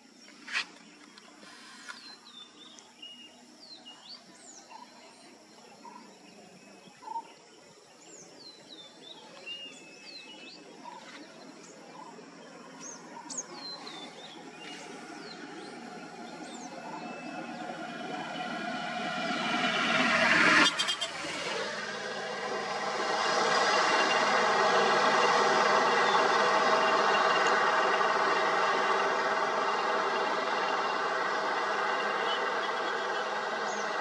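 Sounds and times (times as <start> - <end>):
outdoor background noise: 0.0 - 34.0
wild birds chirping and whistling: 1.4 - 34.0
vehicle approaching: 8.2 - 34.0.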